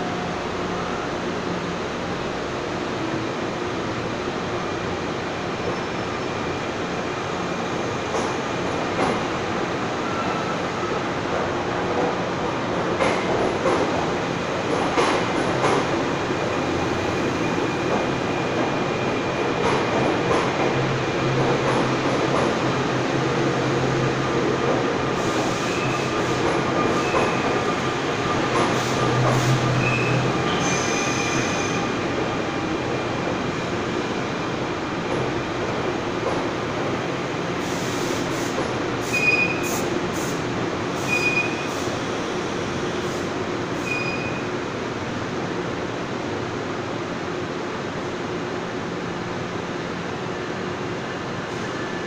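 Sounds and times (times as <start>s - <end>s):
train rail rumble: 0.0s - 43.9s
high wheel squeals: 39.1s - 39.6s, 41.0s - 41.7s, 43.8s - 44.4s.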